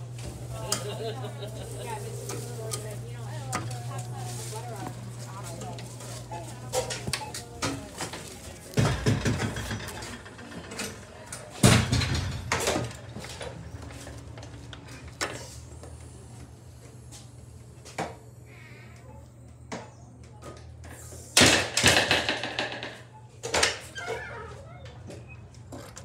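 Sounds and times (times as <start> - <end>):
glass doors knocking and thudding: 7.6 - 14.6, 21.4 - 24.3.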